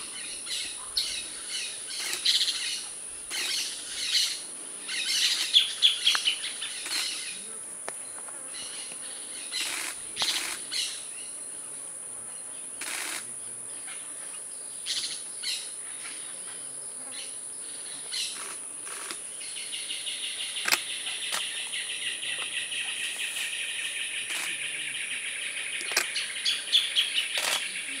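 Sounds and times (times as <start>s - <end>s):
high insect whine: 0.0s - 28.0s
bird chirps: 18.0s - 28.0s.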